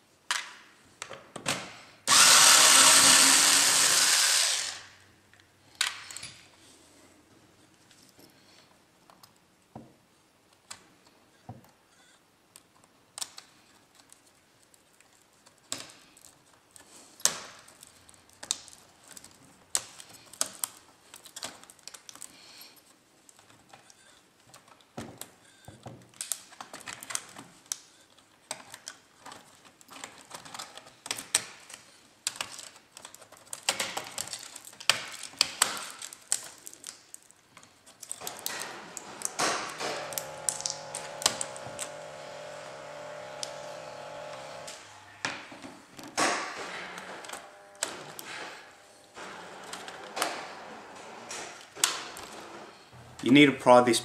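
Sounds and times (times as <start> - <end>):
plastic parts clicking and tapping: 12.5 - 43.7.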